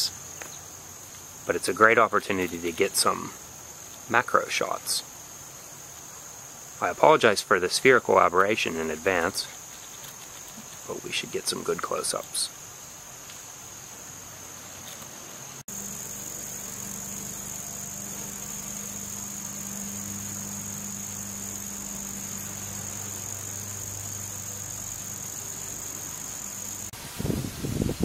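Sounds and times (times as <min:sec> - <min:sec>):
crickets chirping: 0:00.0 - 0:28.0
wind thumps on microphone: 0:27.0 - 0:28.0.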